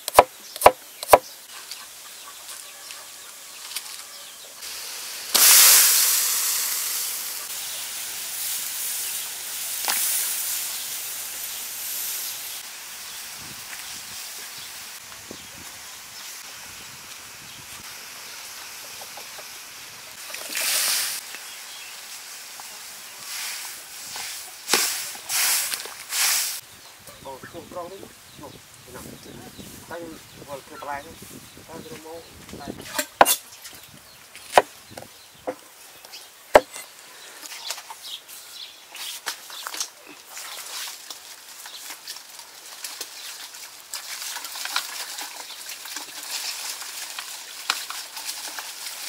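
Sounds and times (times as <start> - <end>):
knife chopping on cutting board: 0.1 - 1.2, 36.6 - 36.8
steady hiss: 3.2 - 32.6.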